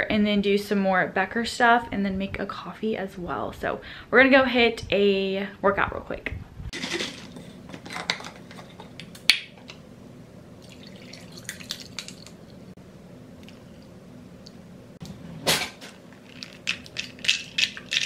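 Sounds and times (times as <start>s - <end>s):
faint steady hum: 0.0s - 18.0s
coffee pouring over ice: 10.6s - 12.4s, 16.1s - 18.0s.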